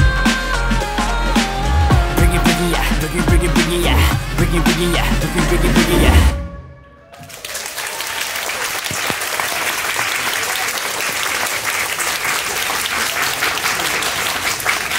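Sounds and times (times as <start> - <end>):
audience applauding: 6.9 - 14.9.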